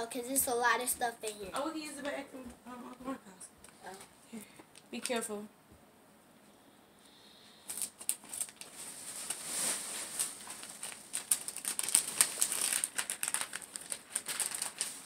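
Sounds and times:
gift packaging crinkling: 7.6s - 15.0s.

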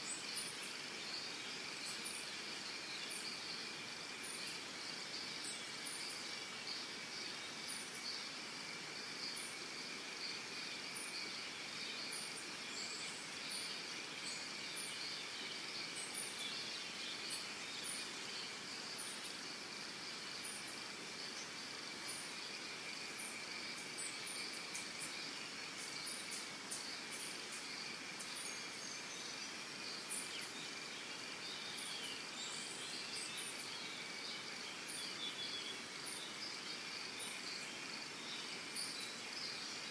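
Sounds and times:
very high insect chirps: 0.0s - 39.9s.

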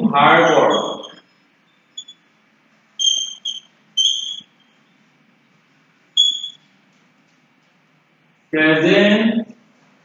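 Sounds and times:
chalk squeaking on a blackboard: 0.4s - 2.2s, 3.0s - 4.8s, 6.2s - 6.7s.

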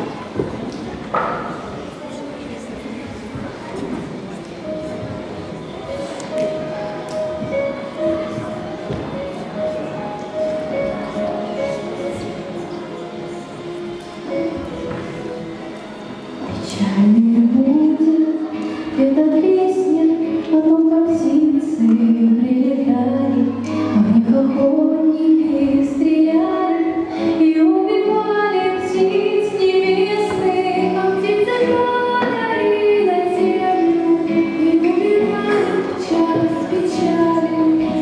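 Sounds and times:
backing music: 4.0s - 38.0s
girls singing into microphones: 16.5s - 38.0s.

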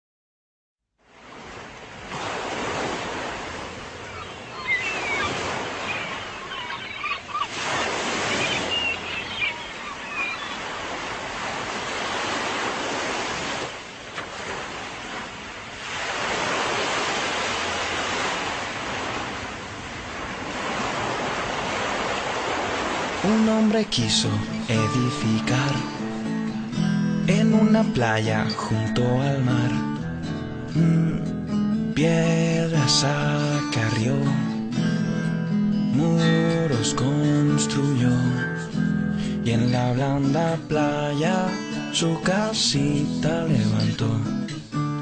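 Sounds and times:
ocean surf washing onto beach: 1.1s - 26.4s
short high chirping calls: 4.1s - 7.5s, 8.2s - 10.7s.

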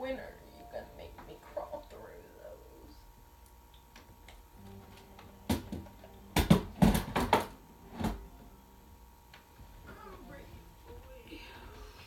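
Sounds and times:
objects knocking on wooden shelf: 5.5s - 8.2s.

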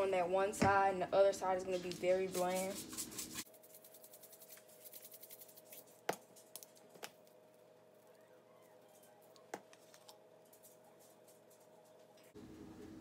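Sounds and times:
spice shakers ticking: 3.5s - 6.8s.

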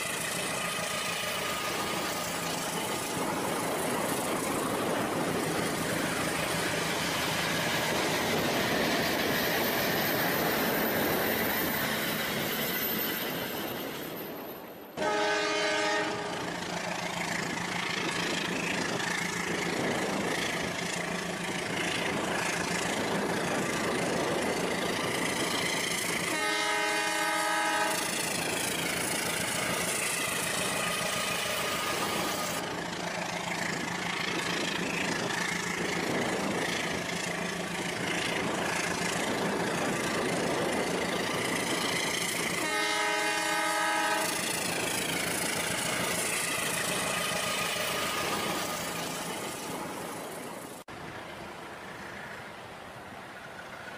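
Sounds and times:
running train noise: 0.0s - 53.9s
train horn blasts: 15.0s - 16.5s, 26.2s - 28.2s, 42.6s - 44.4s.

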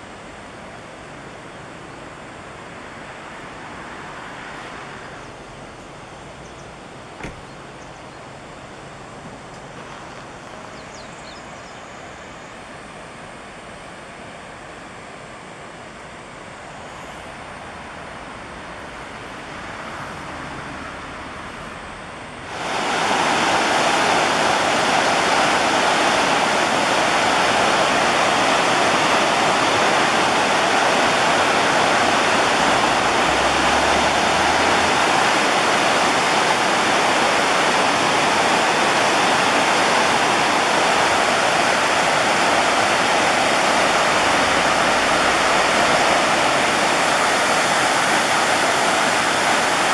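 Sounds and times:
river rushing over rocks: 16.4s - 49.9s.

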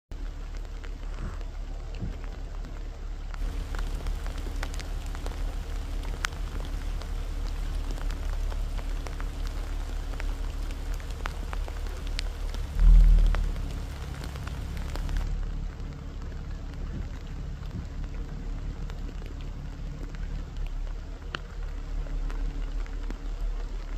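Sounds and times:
light rain pattering: 0.1s - 23.9s
low rumble: 0.1s - 23.9s
loud low thump: 12.6s - 14.7s.

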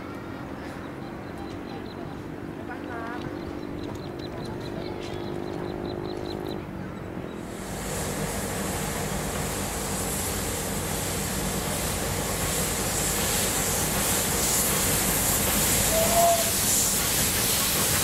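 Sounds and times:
steam train rumbling: 0.0s - 18.0s
steam hiss: 7.4s - 18.0s.

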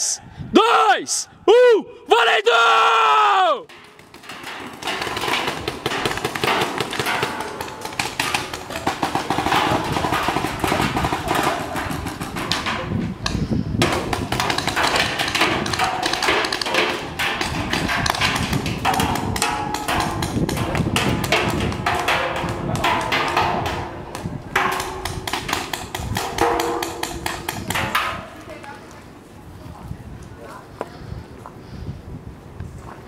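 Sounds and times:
paintball markers firing: 3.9s - 12.6s.

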